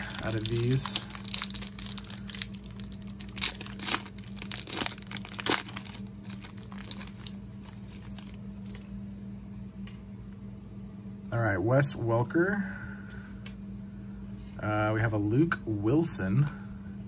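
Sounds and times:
foil wrapper crackling: 0:00.0 - 0:08.9.

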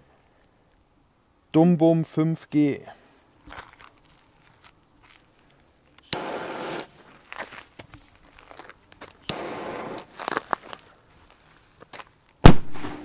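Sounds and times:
footsteps on gravel: 0:03.4 - 0:05.7, 0:06.6 - 0:12.2
fuse hissing: 0:06.0 - 0:07.1, 0:09.2 - 0:10.2.

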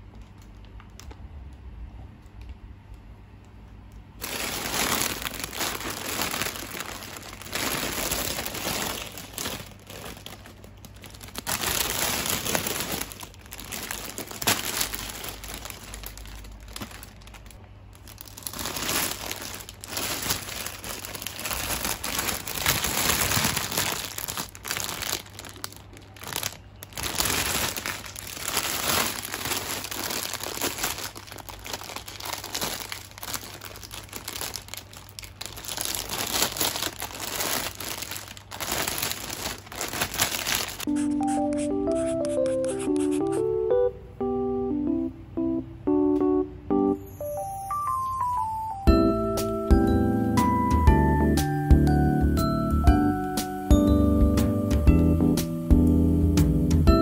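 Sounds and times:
plastic bag crinkling: 0:04.2 - 0:41.0.

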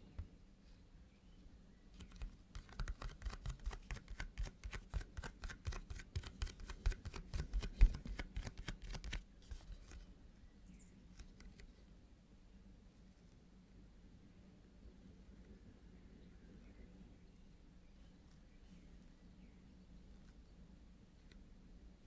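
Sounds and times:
fingers tapping on cardboard: 0:02.0 - 0:08.6.

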